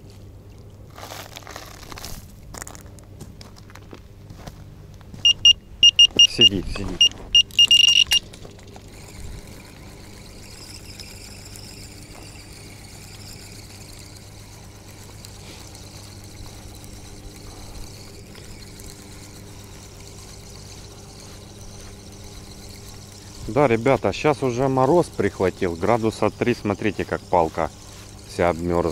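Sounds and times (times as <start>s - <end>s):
electronic bite alarm beeping: 5.2s - 8.2s
fishing reel whirring: 5.2s - 28.9s.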